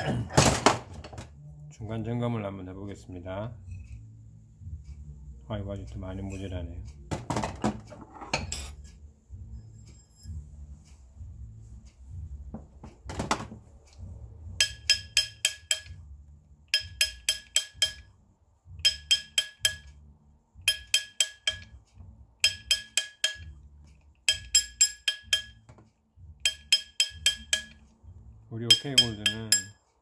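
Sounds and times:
hammer ringing on metal ring: 0:14.4 - 0:16.1, 0:16.7 - 0:20.0, 0:20.6 - 0:21.8, 0:22.4 - 0:23.6, 0:24.3 - 0:25.7, 0:26.4 - 0:27.8, 0:28.7 - 0:29.8.

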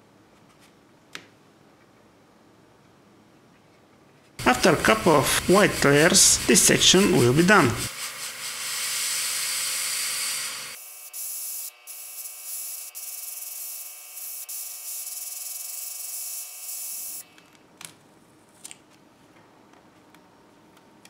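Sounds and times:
airbrush hissing: 0:04.4 - 0:17.2.

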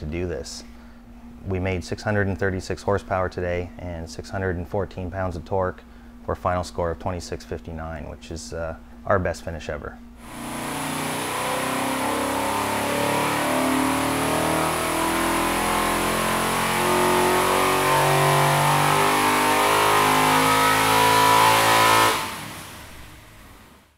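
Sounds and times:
engine running hard on dynamometer: 0:10.2 - 0:23.8.

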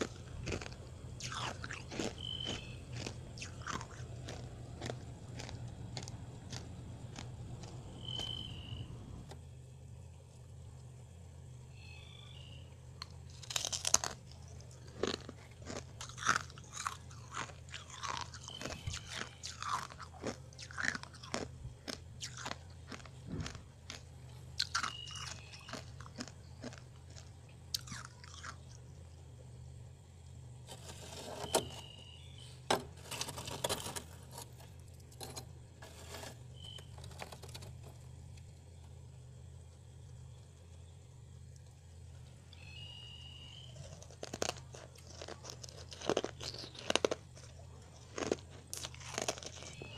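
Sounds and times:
frost crunching while chewed: 0:00.0 - 0:08.8, 0:13.0 - 0:29.3, 0:33.0 - 0:38.6, 0:43.6 - 0:49.9
steady low hum: 0:00.0 - 0:49.9.

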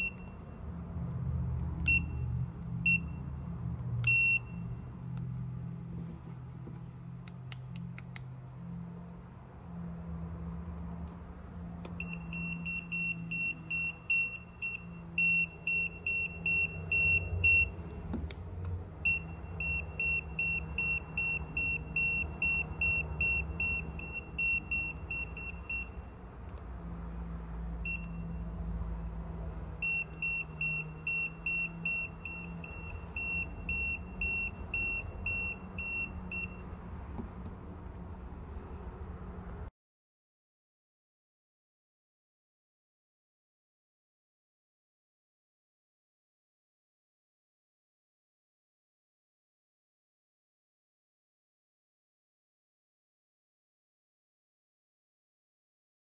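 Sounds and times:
voltage detector beeping rapidly: 0:12.0 - 0:17.7, 0:19.1 - 0:26.0, 0:29.8 - 0:36.6.

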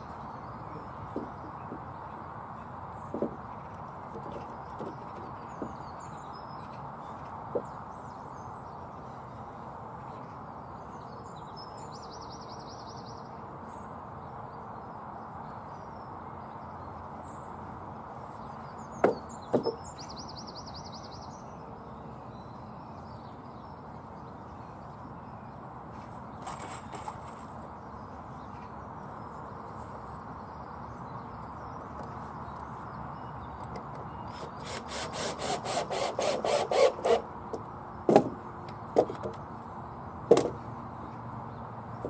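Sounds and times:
wooden knocks of timber: 0:01.1 - 0:01.8, 0:03.1 - 0:03.5, 0:19.0 - 0:19.8, 0:38.1 - 0:38.4, 0:40.3 - 0:40.6.

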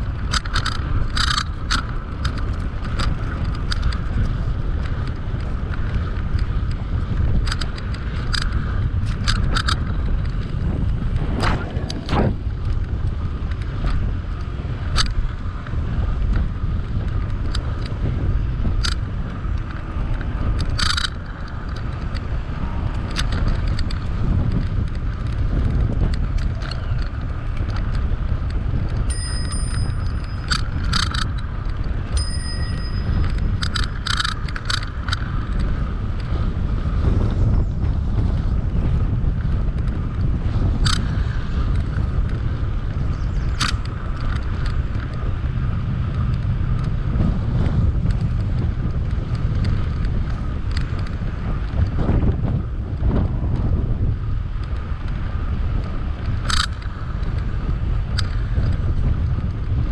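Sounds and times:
bicycle tyres on paved path: 0:00.0 - 0:59.9
sharp clicks and ticks: 0:00.0 - 0:59.9
wind rumble on microphone: 0:00.0 - 0:59.9
bicycle bell ringing: 0:29.1 - 0:31.2, 0:32.0 - 0:34.0.

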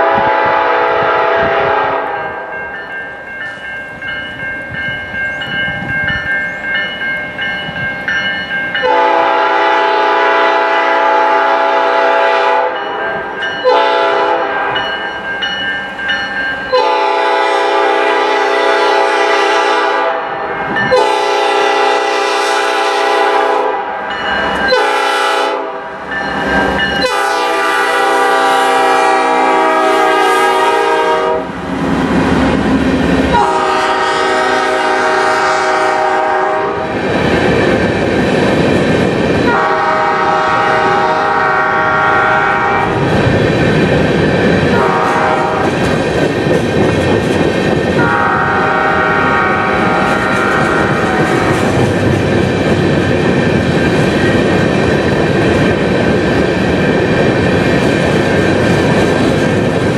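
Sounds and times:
locomotive air horn blasts: 0:00.0 - 0:02.4, 0:08.8 - 0:12.8, 0:13.6 - 0:14.8, 0:16.7 - 0:24.0, 0:24.7 - 0:26.0, 0:27.0 - 0:31.6, 0:33.3 - 0:36.9, 0:39.5 - 0:43.0, 0:44.7 - 0:45.7, 0:48.0 - 0:51.6
low rumble of train: 0:00.0 - 0:59.9
train cars rolling by: 0:00.0 - 0:59.9.

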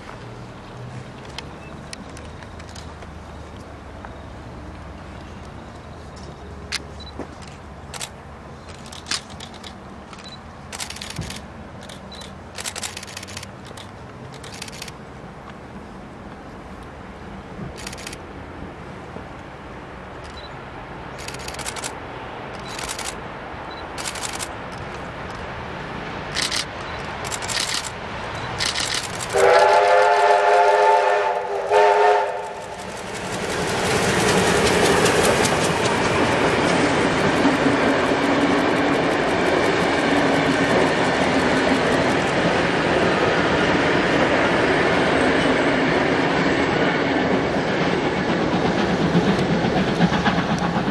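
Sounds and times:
train running noise: 0:00.0 - 0:50.9
camera shutters clicking: 0:06.7 - 0:15.0, 0:17.8 - 0:18.2, 0:21.2 - 0:23.2, 0:24.0 - 0:25.4, 0:26.3 - 0:28.0, 0:28.6 - 0:29.4
steam whistle blast: 0:29.3 - 0:32.6.

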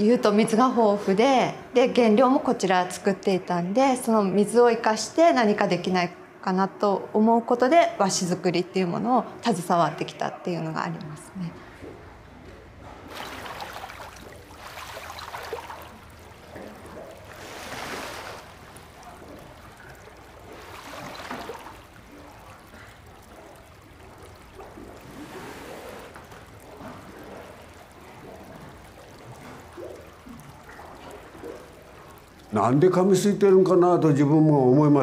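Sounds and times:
water sloshing and pouring: 0:11.6 - 0:34.4.

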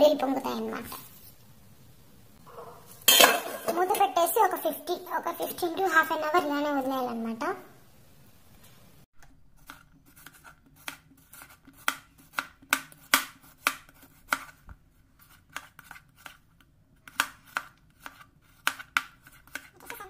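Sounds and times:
knife chopping on cutting board: 0:09.7 - 0:14.6, 0:17.0 - 0:20.0.

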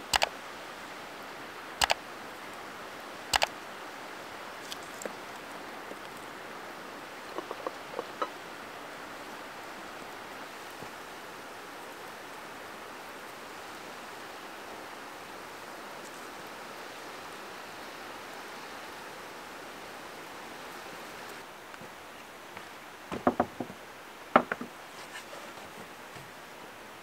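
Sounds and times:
steady soft hiss: 0:00.0 - 0:27.0
dishes set down on wooden table: 0:24.4 - 0:24.7.

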